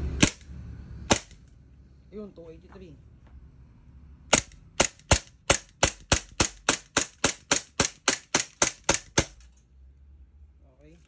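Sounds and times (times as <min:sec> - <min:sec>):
airsoft pistol shots: 0:01.1 - 0:01.4, 0:04.3 - 0:09.4.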